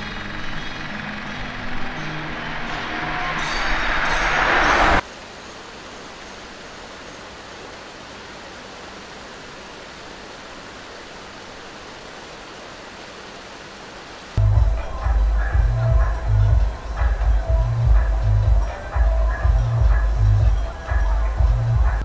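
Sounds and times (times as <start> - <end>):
car passing close by: 0.0 - 5.0
mountain stream over rocks: 5.0 - 22.0.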